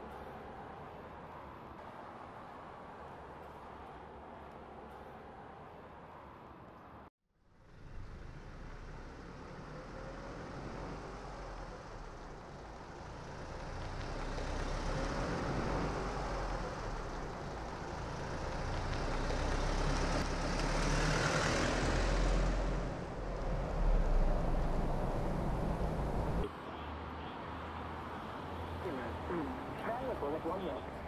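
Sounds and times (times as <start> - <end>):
car engine: 7.5 - 26.5.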